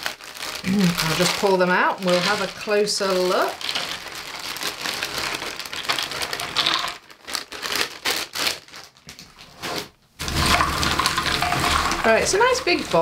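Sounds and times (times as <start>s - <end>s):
pieces rustling by hand: 0.0s - 13.0s
plastic bag crinkling: 0.0s - 13.0s.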